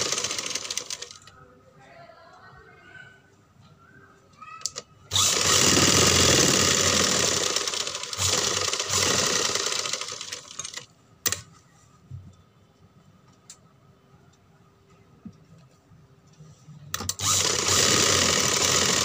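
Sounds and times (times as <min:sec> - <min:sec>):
sewing machine stitching: 0:00.0 - 0:01.2, 0:05.1 - 0:10.9, 0:17.0 - 0:19.0.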